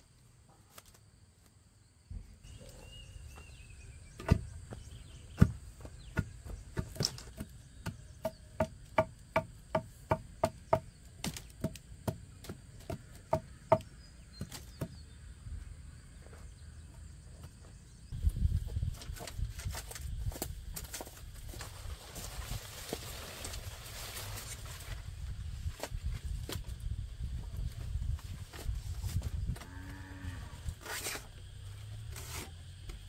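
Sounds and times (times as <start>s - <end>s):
chopping strikes on wood: 4.2s - 4.5s, 5.3s - 15.0s.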